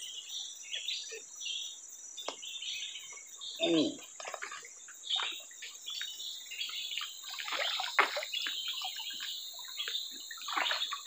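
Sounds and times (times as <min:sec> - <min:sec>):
water splashing and dripping: 0:04.0 - 0:11.0.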